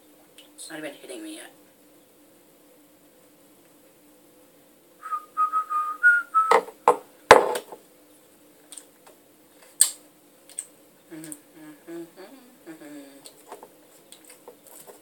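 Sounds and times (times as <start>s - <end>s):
person whistling short notes: 5.0s - 6.6s.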